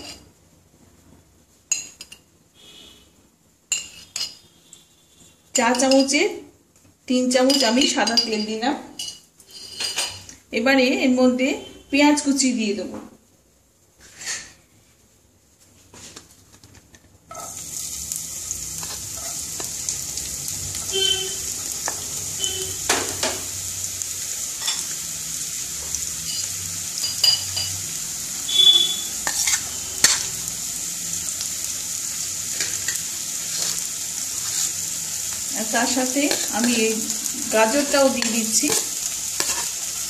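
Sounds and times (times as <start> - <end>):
onion sizzling in hot oil: 0.0 - 0.4, 7.1 - 8.6, 17.3 - 40.0.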